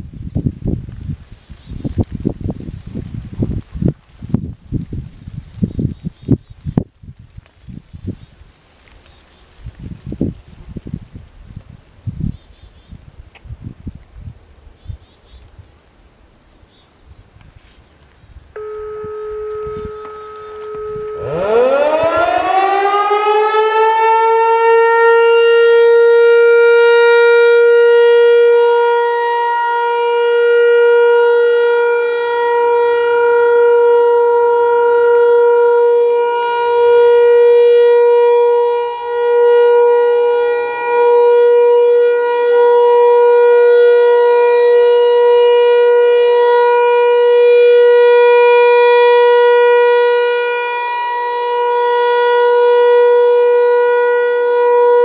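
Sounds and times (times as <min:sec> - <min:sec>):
rotating warning siren: 0:18.5 - 0:55.0.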